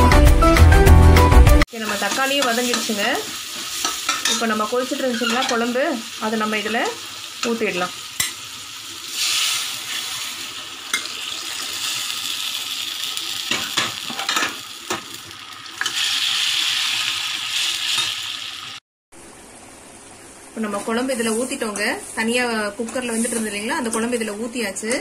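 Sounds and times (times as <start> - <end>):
masala sizzling in a pan: 1.7 - 18.8.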